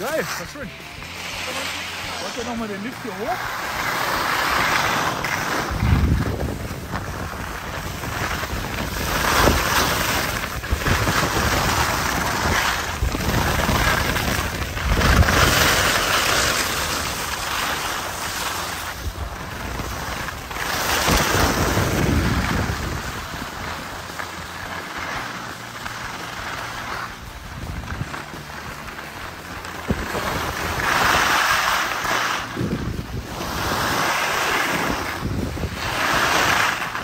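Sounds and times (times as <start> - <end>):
wind buffeting microphone: 5.5 - 17.6, 18.9 - 24.1, 29.8 - 37.0.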